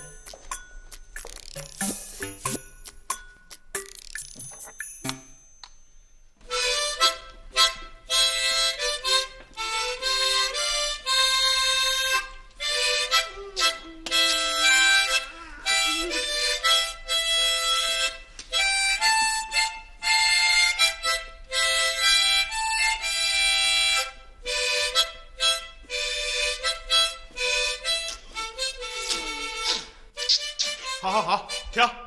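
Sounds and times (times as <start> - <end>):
harmonica playing: 0.0 - 3.1, 6.4 - 32.0.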